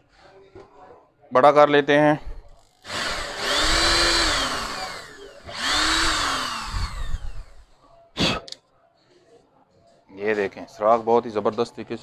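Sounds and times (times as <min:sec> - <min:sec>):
electric drill with hole saw: 0:02.8 - 0:07.6.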